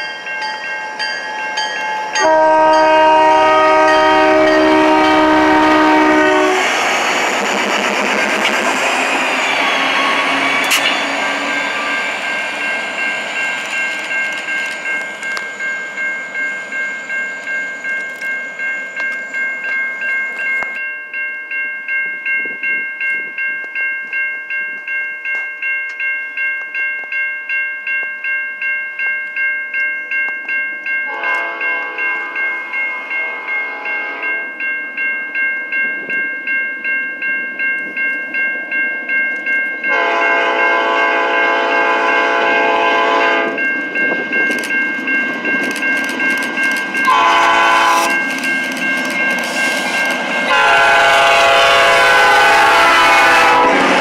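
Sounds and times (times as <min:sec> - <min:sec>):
freight train rumble: 0:00.0 - 0:20.8, 0:31.1 - 0:54.0
railroad crossing bell ringing: 0:00.0 - 0:54.0
distant train horn: 0:02.2 - 0:06.9, 0:31.1 - 0:32.4, 0:39.9 - 0:43.6, 0:47.0 - 0:48.3, 0:50.5 - 0:54.0.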